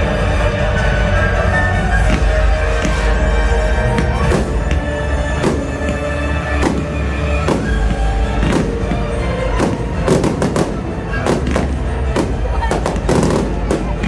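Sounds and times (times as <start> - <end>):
fireworks bangs: 3.9 - 14.0.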